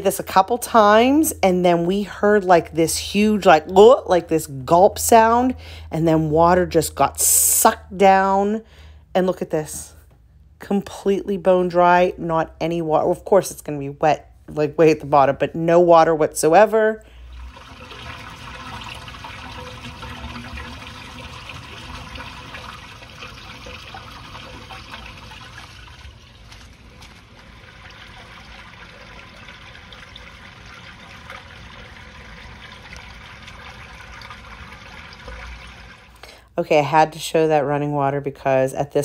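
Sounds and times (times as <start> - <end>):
water trickling down a pipe: 15.2 - 36.4.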